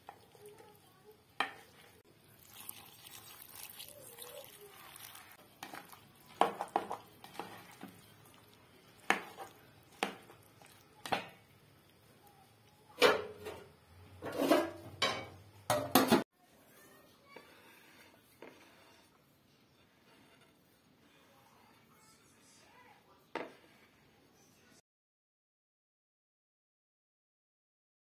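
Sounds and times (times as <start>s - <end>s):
utensil scraping metal pot: 2.6s - 11.3s, 13.0s - 15.1s, 17.4s - 19.2s.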